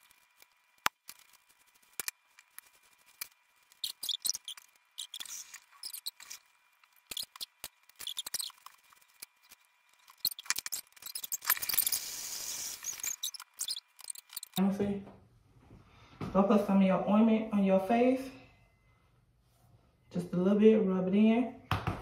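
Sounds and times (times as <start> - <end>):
comb through hair clicking and rustling: 0.0 - 14.6.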